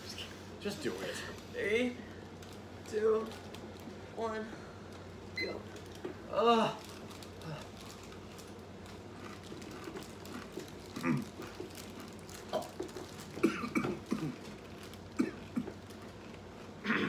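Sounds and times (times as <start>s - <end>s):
people grunting: 11.0s - 11.3s.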